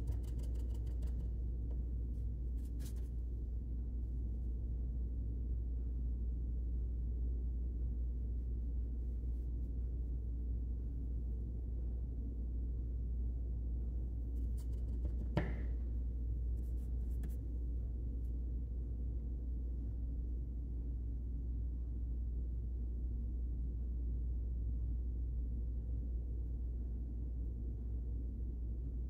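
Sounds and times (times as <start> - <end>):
low hum of room tone: 0.0 - 29.0
plastic bottle tap: 15.1 - 15.7.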